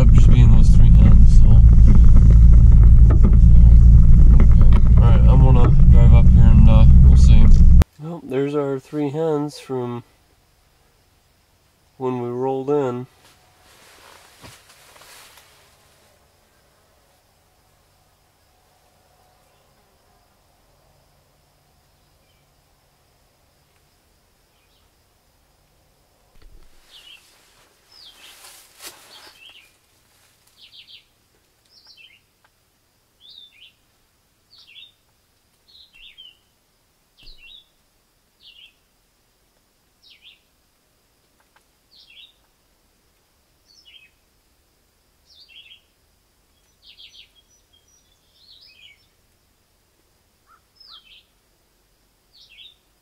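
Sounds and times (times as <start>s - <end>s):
rustling crackle: 0.0s - 7.8s, 13.1s - 16.3s, 26.5s - 30.7s
songbird singing: 16.3s - 32.5s, 33.2s - 36.6s, 37.2s - 38.9s, 40.0s - 40.6s, 41.8s - 42.5s, 43.6s - 44.3s, 45.2s - 49.4s, 50.4s - 51.5s, 52.3s - 53.0s.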